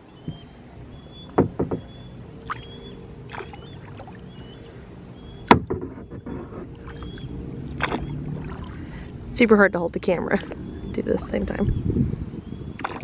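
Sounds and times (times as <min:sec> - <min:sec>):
eagle calling: 0:00.2 - 0:08.2
paddle knocking on plastic kayak: 0:01.4 - 0:01.9, 0:05.5 - 0:06.4.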